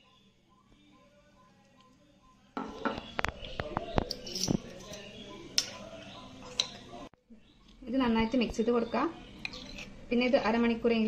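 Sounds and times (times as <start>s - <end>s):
metal spoon clinking on glass bowl: 4.1s - 5.8s, 6.5s - 6.8s, 9.4s - 9.9s.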